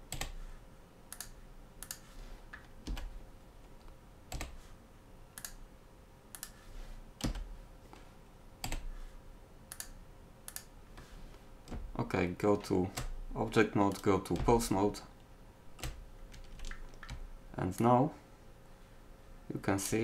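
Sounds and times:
keyboard and mouse clicks: 0.0 - 0.4, 1.1 - 3.1, 3.7 - 4.6, 5.3 - 5.6, 6.3 - 6.6, 7.2 - 7.5, 8.6 - 8.9, 9.7 - 10.7, 15.8 - 17.9
faint steady hum: 0.0 - 20.0.

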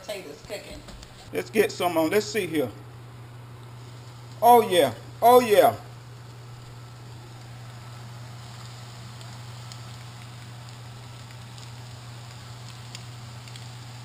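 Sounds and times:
low hum: 0.0 - 14.0
fish frying in hot oil: 3.8 - 14.0.

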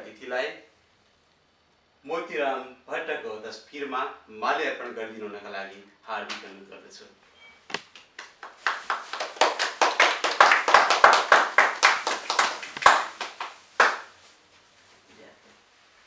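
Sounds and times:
people applauding: 8.2 - 14.1.

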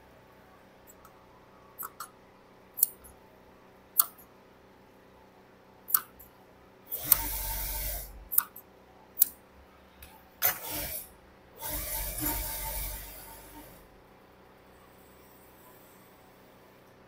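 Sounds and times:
steel shears clicking: 2.8 - 3.1, 6.9 - 8.6.

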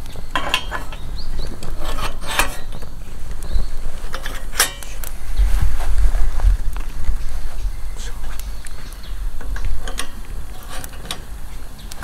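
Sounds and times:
metal clanks and scrapes: 0.0 - 3.2, 4.0 - 5.2, 9.4 - 12.0.

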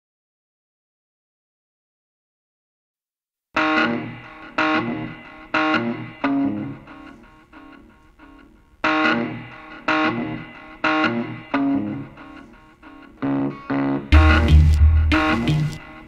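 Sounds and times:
guitar chords ringing: 3.6 - 16.0.

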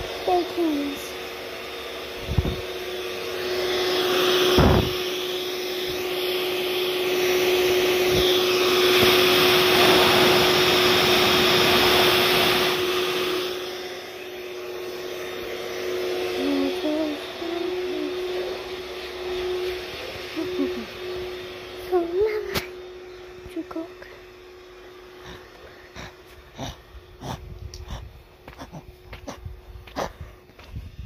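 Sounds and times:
whooshing appliance motor: 0.0 - 29.8.

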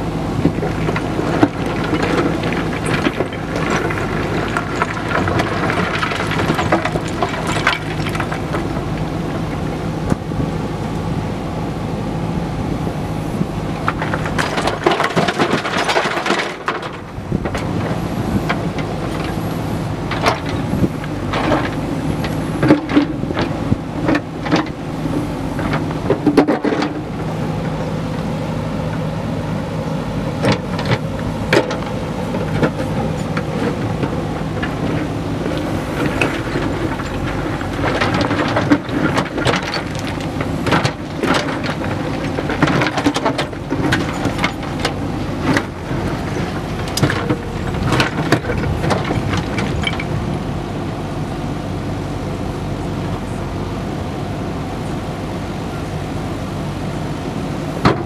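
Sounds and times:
diesel engine running: 0.0 - 58.0
rocks clattering on steel bucket: 0.5 - 10.2, 13.8 - 24.8, 25.5 - 27.7, 30.4 - 50.3.

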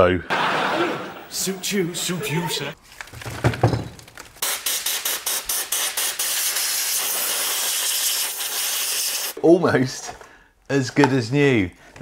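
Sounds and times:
compressed air blow gun blasting: 4.4 - 9.4.

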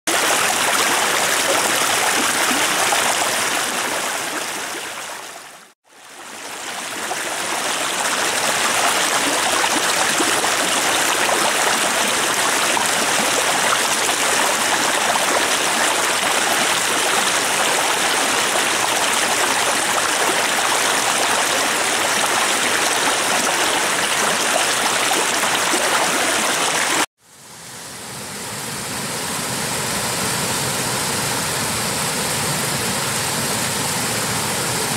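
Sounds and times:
stream rushing over rocks: 0.1 - 27.1.

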